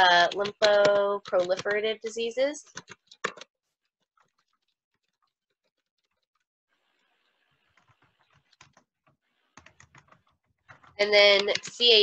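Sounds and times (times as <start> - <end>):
computer keyboard typing: 0.0 - 3.5, 7.8 - 8.9, 9.6 - 12.0.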